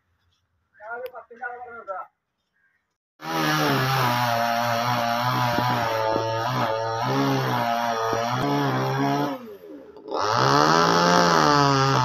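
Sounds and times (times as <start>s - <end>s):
chainsaw engine running: 3.2s - 12.0s.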